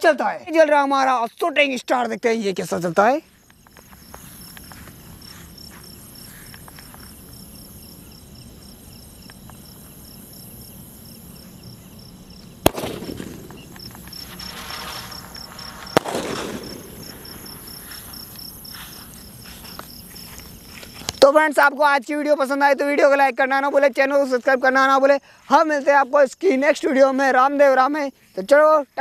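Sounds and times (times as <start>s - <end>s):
crickets chirping: 0.0s - 29.0s
firework bangs: 12.6s - 18.6s
firework hiss: 12.6s - 20.2s.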